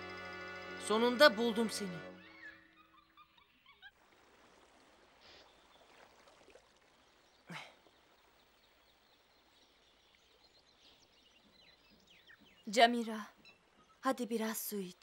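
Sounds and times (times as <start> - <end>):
faint forest ambience: 0.0 - 15.0.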